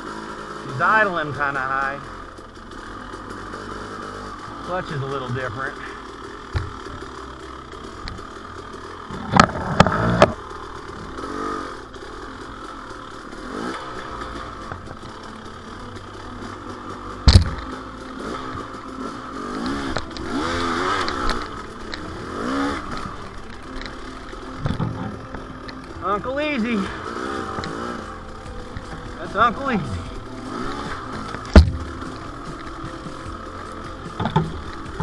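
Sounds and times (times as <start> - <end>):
dirt bike engine revving: 0.0 - 35.0
sharp knocks and clatter: 6.4 - 11.2, 17.2 - 18.9, 30.8 - 35.0.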